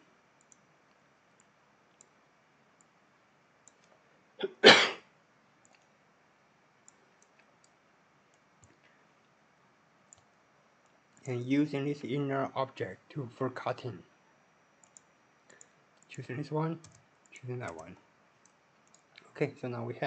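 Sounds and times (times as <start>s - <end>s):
faint computer mouse clicks: 0.4s - 2.2s, 3.6s - 4.0s, 5.6s - 5.9s, 6.8s - 8.9s, 10.1s - 11.3s, 14.8s - 16.2s, 16.8s - 19.3s
person coughing: 4.4s - 5.0s.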